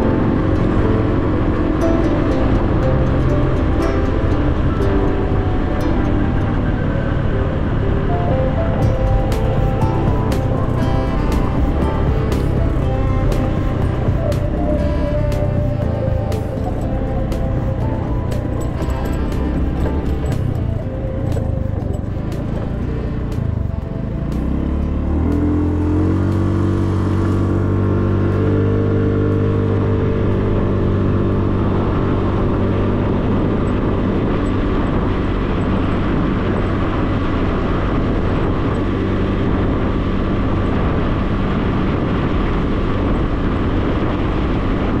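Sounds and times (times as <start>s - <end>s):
wind rush on microphone: 0.0s - 45.0s
small motorcycle engine: 9.0s - 44.9s.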